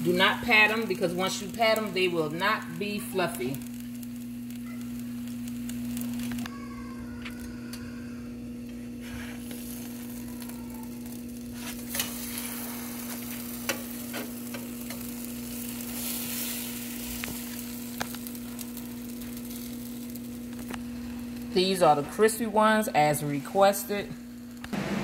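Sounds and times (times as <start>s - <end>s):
batter sizzling on griddle: 0.0s - 7.4s, 8.0s - 25.0s
steady hum: 0.0s - 25.0s
metal spatula scraping griddle: 9.0s - 9.7s, 11.6s - 15.1s.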